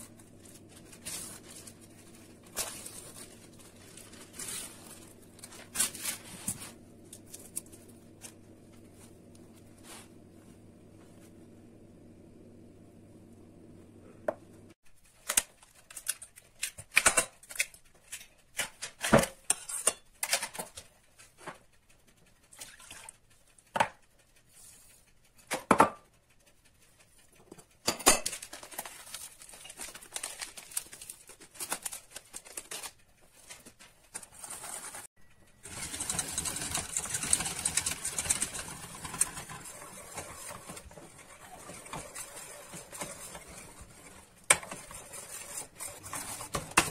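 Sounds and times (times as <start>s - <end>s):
batter mixing in a steel pot: 0.0s - 10.3s, 16.1s - 21.6s, 27.1s - 32.8s, 33.4s - 46.9s.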